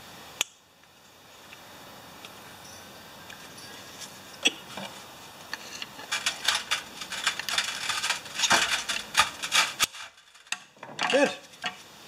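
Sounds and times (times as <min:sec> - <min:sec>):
metal parts scraping and clicking: 0:05.5 - 0:11.8.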